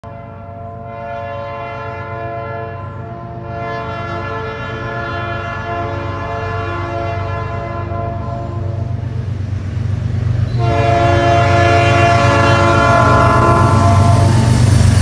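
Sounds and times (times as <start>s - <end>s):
locomotive horn: 0.0s - 9.2s, 10.4s - 14.9s
low engine rumble: 6.5s - 15.0s.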